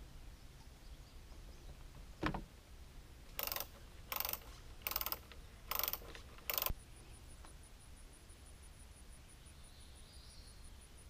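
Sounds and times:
rapid ratcheting clicks: 3.3 - 6.7.

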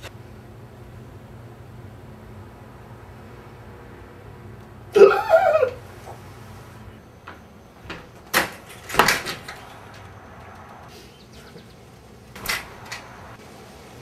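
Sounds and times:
door knocking and clattering: 7.3 - 10.1.

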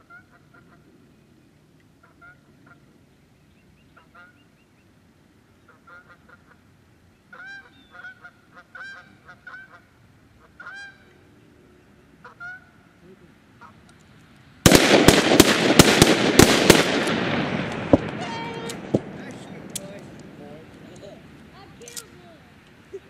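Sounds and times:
geese honking: 0.0 - 0.9, 2.0 - 2.9, 3.9 - 4.5, 5.6 - 6.7, 7.3 - 13.0, 13.6 - 14.0
rapid gunshots: 14.6 - 19.2.

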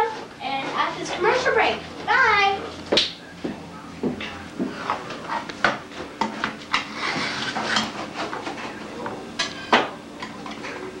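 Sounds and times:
plates and cutlery clinking: 4.1 - 11.0.

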